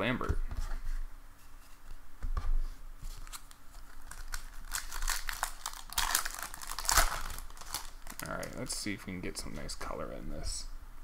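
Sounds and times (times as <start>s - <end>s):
wrapper crinkling and tearing: 3.1s - 8.9s.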